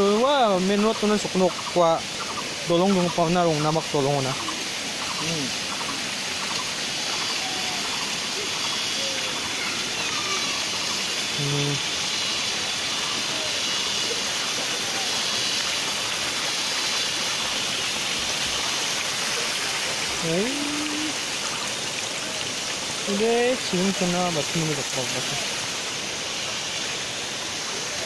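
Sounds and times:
river water flowing: 0:00.0 - 0:28.0
person's short voiced sound: 0:05.2 - 0:05.5, 0:11.4 - 0:11.8, 0:20.2 - 0:21.2.

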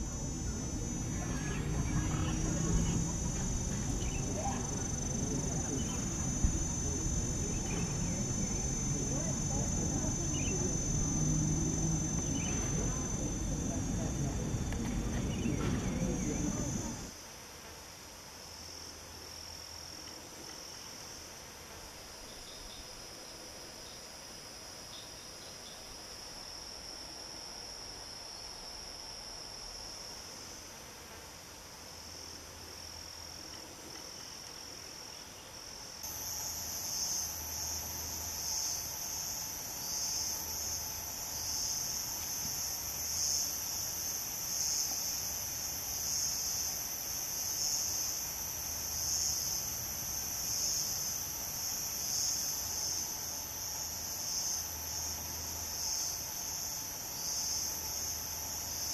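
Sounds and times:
high-pitched insect chorus: 0:00.0 - 0:17.2, 0:22.0 - 0:30.7, 0:31.9 - 0:58.9
pulsing insect chorus: 0:00.0 - 0:17.2, 0:18.4 - 0:58.9.

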